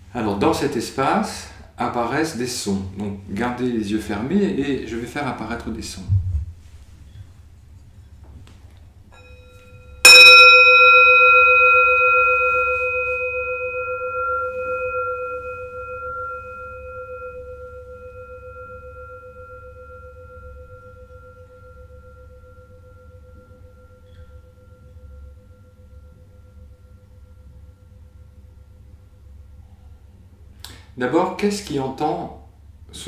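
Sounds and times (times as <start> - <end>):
metal chime ringing: 9.1 - 28.4.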